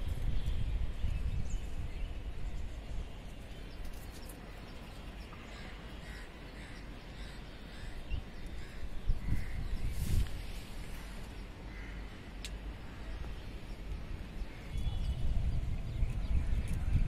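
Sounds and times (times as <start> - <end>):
birds calling faintly: 0.0 - 17.0
wind rumbling on microphone: 0.0 - 17.0.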